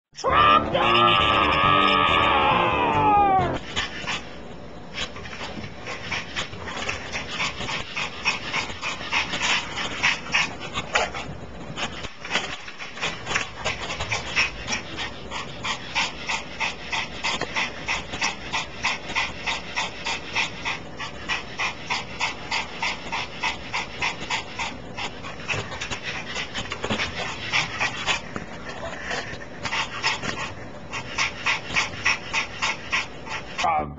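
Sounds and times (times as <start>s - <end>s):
dog whimpering: 0.2s - 3.6s
dog panting rapidly: 5.0s - 33.7s.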